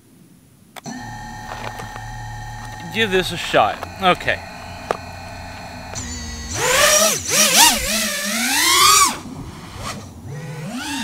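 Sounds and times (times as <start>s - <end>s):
quadcopter motors and propellers whining: 0.8s - 11.0s.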